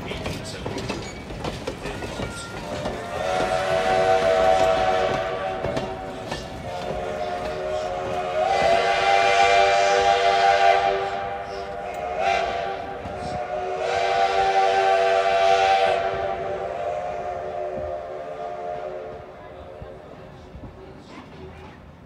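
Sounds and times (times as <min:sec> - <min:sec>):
steam hissing: 0:00.0 - 0:19.3
steam whistle chord blasts: 0:07.0 - 0:19.1.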